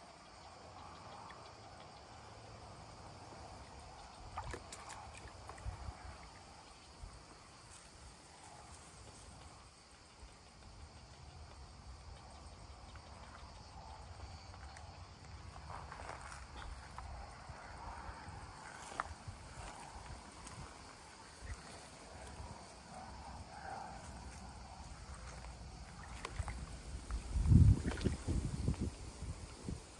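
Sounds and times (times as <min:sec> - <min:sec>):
water sloshing in a tub: 0:03.6 - 0:06.7, 0:24.8 - 0:28.9
sharp splashes and knocks: 0:04.3 - 0:05.8, 0:25.9 - 0:28.4.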